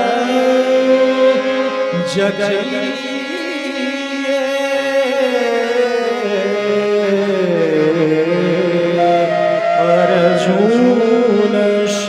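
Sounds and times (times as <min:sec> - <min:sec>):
instrumental accompaniment: 0:00.0 - 0:12.0
person singing devotional song: 0:00.0 - 0:12.0.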